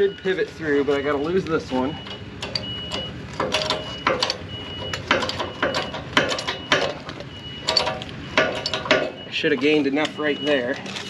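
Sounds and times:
hydraulic jack clicks and clanks: 2.0s - 9.3s.

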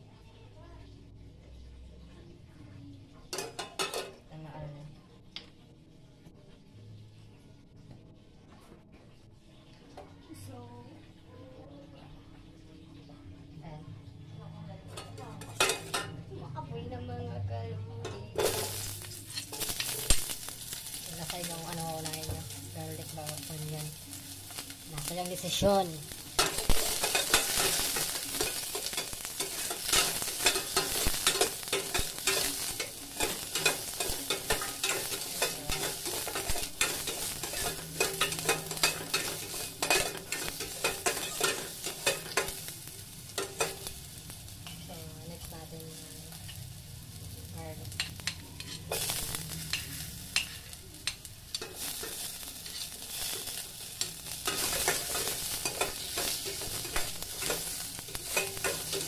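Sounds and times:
onions sizzling in a pot: 0.0s - 8.4s, 9.1s - 59.0s
metal ladle clinking against pot: 26.4s - 42.6s.

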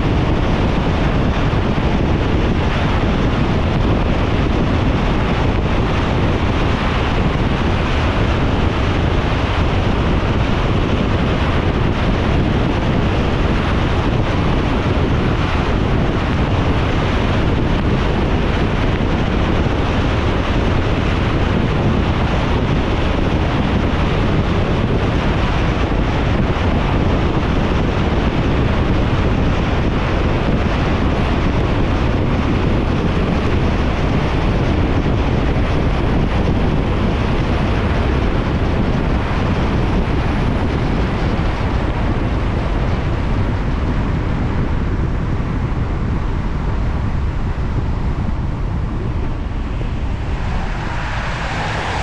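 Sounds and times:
tyres hissing on wet road: 49.6s - 52.0s.

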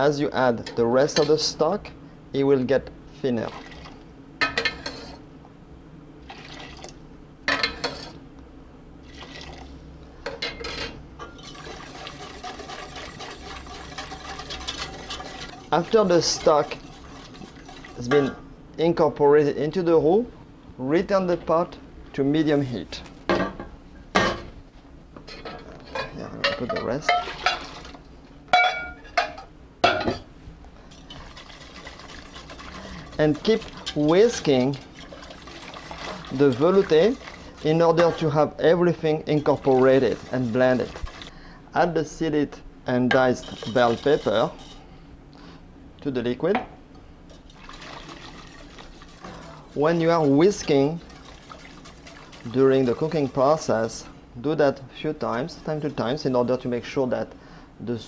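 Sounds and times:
whisk stirring soup in metal pot: 4.6s - 5.2s, 6.3s - 8.2s, 11.4s - 18.2s, 27.1s - 28.1s, 30.9s - 41.3s, 43.1s - 44.8s, 47.3s - 54.2s, 55.1s - 56.9s
metal pots clinking: 25.3s - 30.3s.

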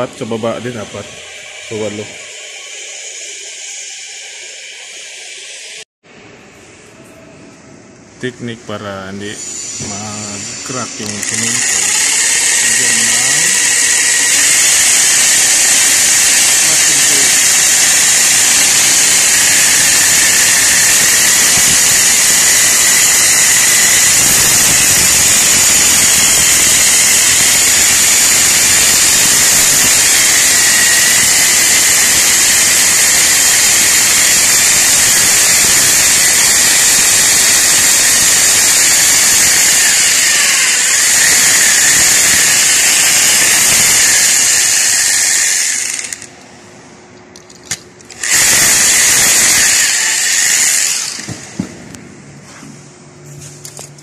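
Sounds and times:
electric drill boring into wall: 9.4s - 46.4s, 48.1s - 51.7s.

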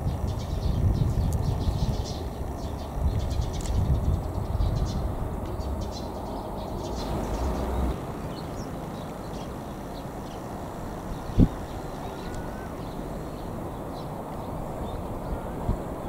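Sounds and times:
low rumble: 0.0s - 15.8s
faint bird chirps: 6.0s - 15.6s.

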